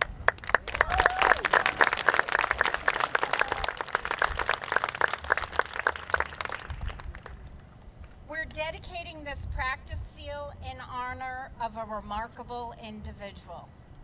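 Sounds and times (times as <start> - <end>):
crowd applauding: 0.0 - 7.5
person cheering: 0.7 - 1.7, 2.9 - 3.9.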